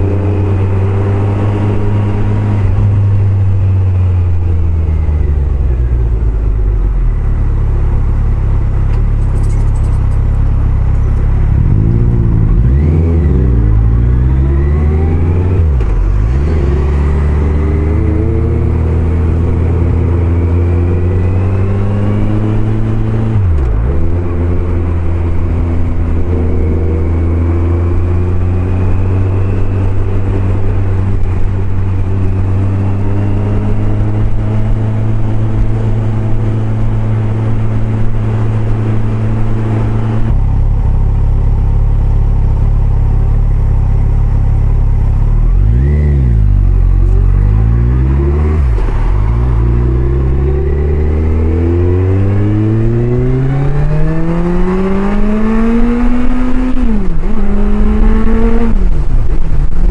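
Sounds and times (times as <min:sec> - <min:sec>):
motorcycle engine revving: 0:00.0 - 0:59.9
wind noise on microphone: 0:46.0 - 0:59.9.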